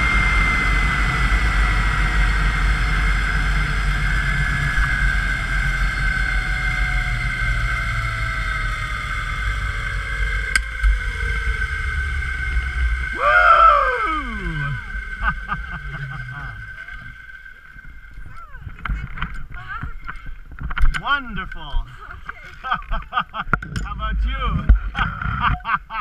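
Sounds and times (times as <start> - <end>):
sound sliding down in pitch: 0.0 - 18.7
trolley wheels whining on cable: 0.0 - 26.0
wind rumbling on microphone: 0.0 - 26.0.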